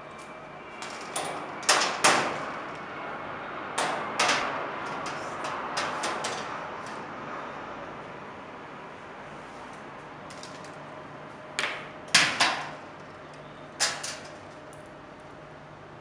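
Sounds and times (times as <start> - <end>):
light fixture parts clacking: 3.8 - 7.0.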